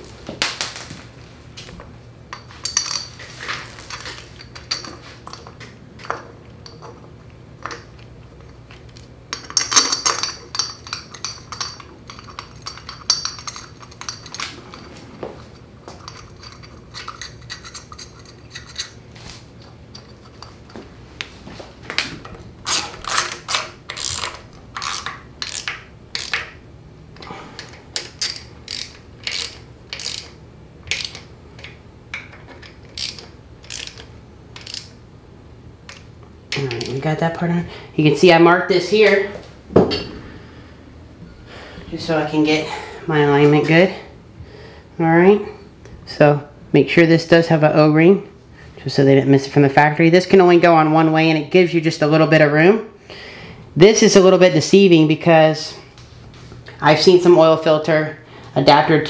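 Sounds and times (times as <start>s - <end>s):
metal tools clinking: 0.0s - 7.0s, 8.7s - 19.0s
hand ratchet clicking: 22.7s - 26.6s, 27.6s - 35.0s.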